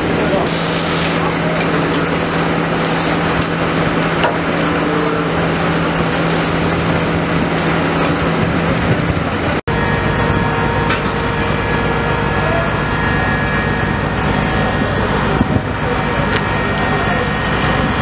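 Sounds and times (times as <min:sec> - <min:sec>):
pump engine drone: 0:00.0 - 0:18.0
rushing hiss of fire and hose spray: 0:00.4 - 0:01.4.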